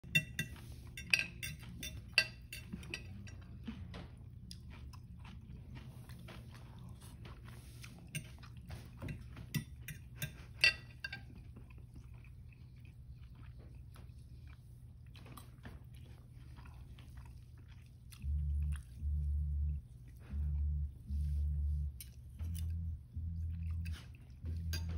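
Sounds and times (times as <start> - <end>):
low buzzing: 18.2 - 24.9.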